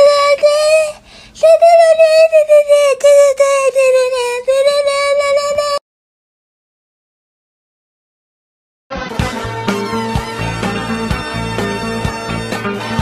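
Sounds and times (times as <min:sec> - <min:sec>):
high-pitched altered singing voice: 0:00.0 - 0:05.8.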